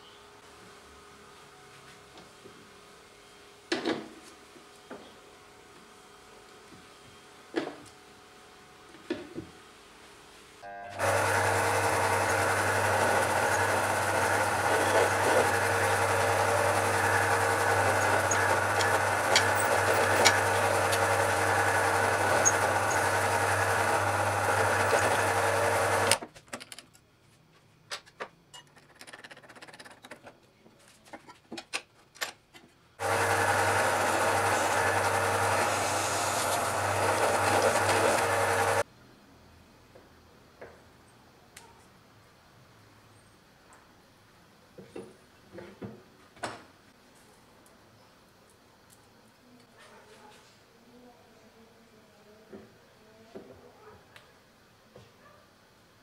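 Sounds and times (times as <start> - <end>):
drill press running: 10.9 - 26.2, 33.0 - 38.8.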